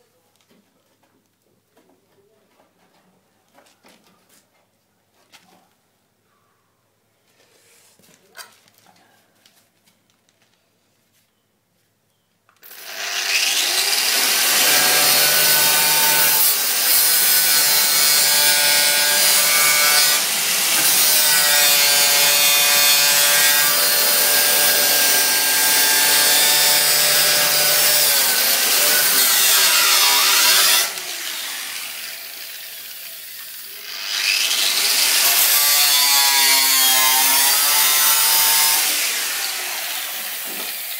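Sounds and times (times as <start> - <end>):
angle grinder grinding metal: 12.6 - 40.9.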